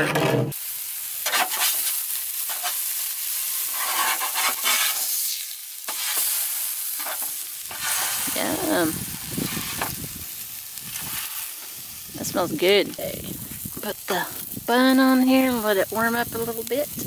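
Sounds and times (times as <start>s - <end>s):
metal spatula scraping pan: 0.0s - 0.6s, 3.7s - 5.1s
patty sizzling on grill pan: 0.5s - 17.0s.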